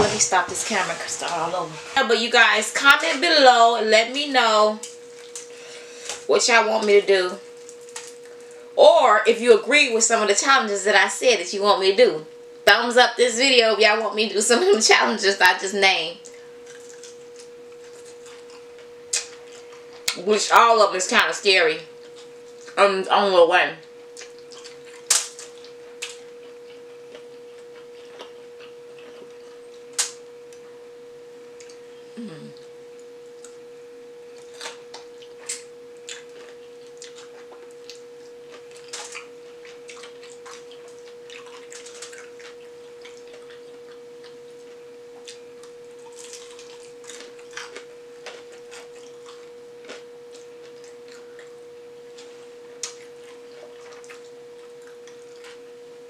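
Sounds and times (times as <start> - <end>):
steady electronic tone: 0.0 - 4.7
wet chewing and mouth smacks: 16.2 - 20.2, 24.2 - 29.4, 34.4 - 44.4, 45.2 - 51.5, 52.2 - 55.6
crunching fried chicken: 16.3 - 20.2, 24.0 - 30.7, 34.4 - 55.7.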